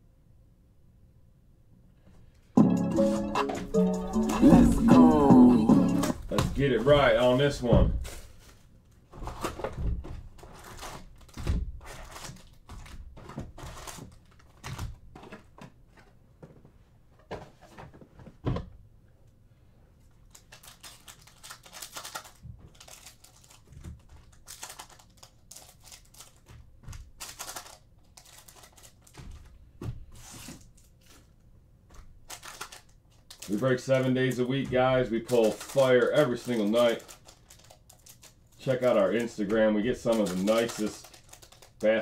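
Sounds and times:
foil packs crinkling: 6.4s - 15.3s, 20.2s - 29.5s, 30.1s - 31.4s, 32.0s - 42.0s
scissors cutting pack: 35.2s - 41.9s.

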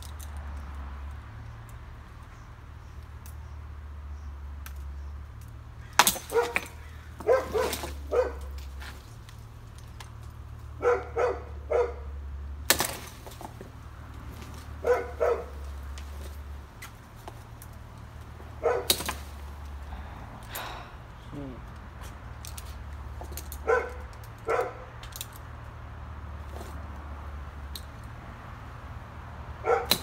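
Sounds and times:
dog barking: 6.3s - 6.6s, 7.2s - 8.5s, 10.8s - 12.1s, 14.8s - 15.6s, 18.6s - 18.9s, 23.6s - 24.9s, 29.6s - 30.0s.

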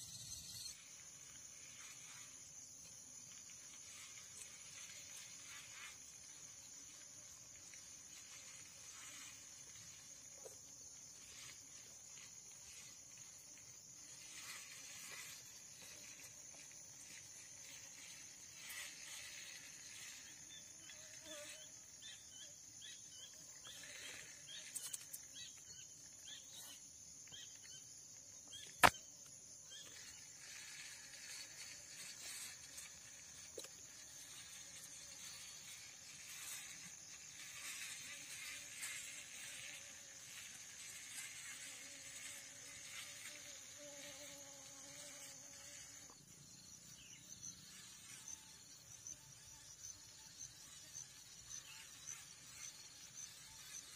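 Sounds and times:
high-pitched insect buzz: 0.0s - 53.9s
sharp click: 28.6s - 29.0s.

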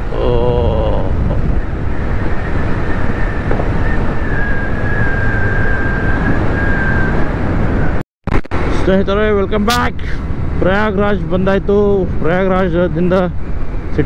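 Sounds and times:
wind rush on microphone: 0.0s - 14.0s
thin high whine: 1.5s - 9.0s.

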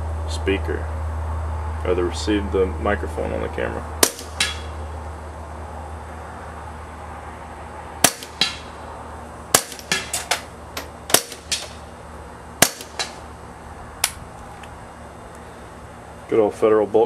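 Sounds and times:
suppressed pistol firing: 4.0s - 4.7s, 8.0s - 8.7s, 9.5s - 10.4s, 11.1s - 11.8s, 12.6s - 13.2s
bullet striking backstop: 4.0s - 4.8s, 8.0s - 8.7s, 9.5s - 11.8s, 12.6s - 13.3s.

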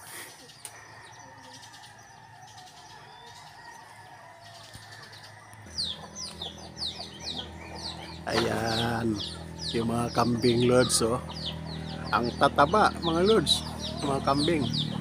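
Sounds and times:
chickens calling: 0.0s - 15.0s.

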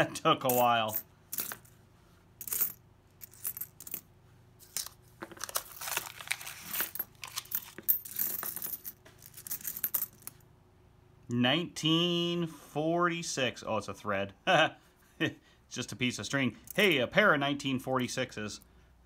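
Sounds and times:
coins clinking: 0.4s - 1.7s, 2.4s - 10.4s
paper rustling: 5.2s - 7.8s.

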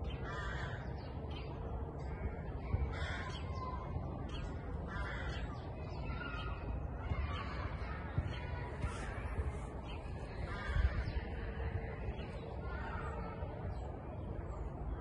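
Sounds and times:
crows cawing: 0.2s - 0.9s, 2.9s - 3.4s, 4.9s - 5.5s, 10.5s - 11.1s.

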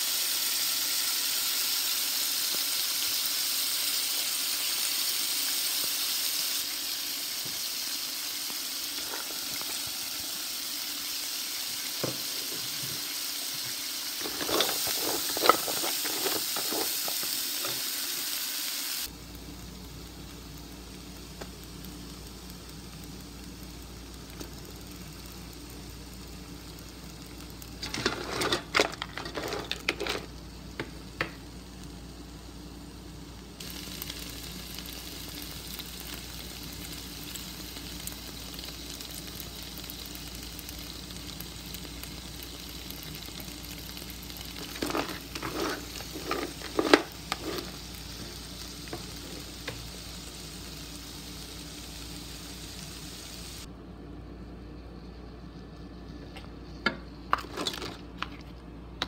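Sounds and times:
food sizzling in frying pan: 0.0s - 53.7s
stirring clatter in pan: 14.2s - 17.9s, 27.8s - 30.3s, 44.6s - 47.8s.

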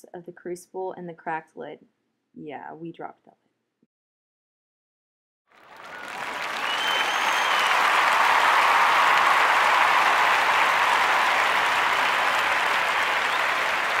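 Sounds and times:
crowd applauding: 5.5s - 14.0s
whistle: 5.9s - 8.2s, 12.0s - 14.0s.

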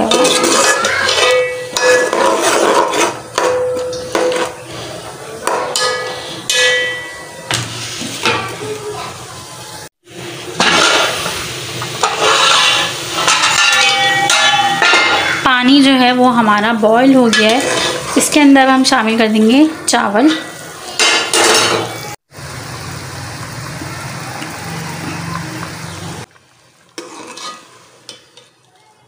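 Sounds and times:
ladle scraping and knocking pot: 0.0s - 4.6s, 11.8s - 15.4s, 17.3s - 18.3s, 27.0s - 28.5s
metal lid clatter: 0.0s - 4.6s, 12.0s - 15.4s.

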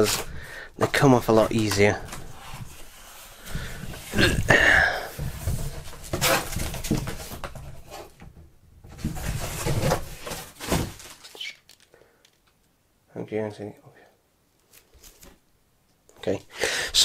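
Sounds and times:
cardboard scraping and rustling: 0.0s - 4.3s, 5.1s - 8.2s, 8.9s - 11.5s.

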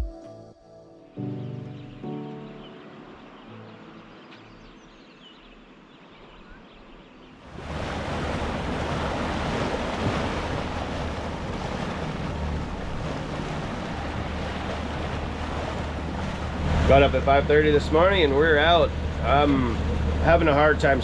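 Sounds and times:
water washing along hull: 2.0s - 21.0s
wind rushing over microphone: 7.4s - 21.0s.

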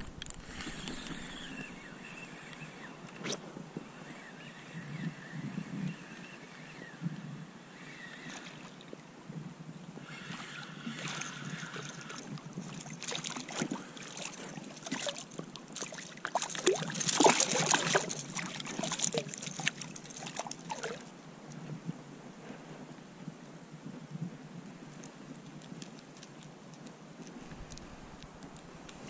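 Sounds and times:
fish splashing at water surface: 10.9s - 21.1s.

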